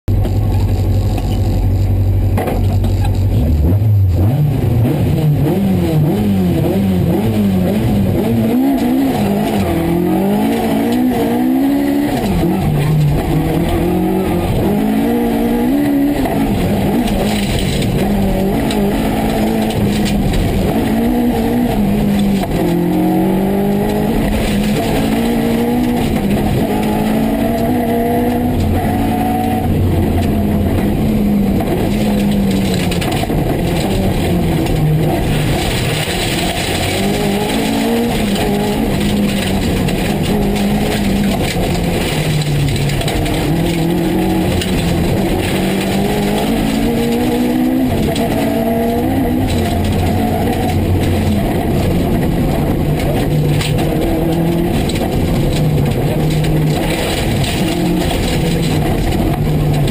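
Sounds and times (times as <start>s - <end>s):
rally car engine revving: 0.0s - 59.9s.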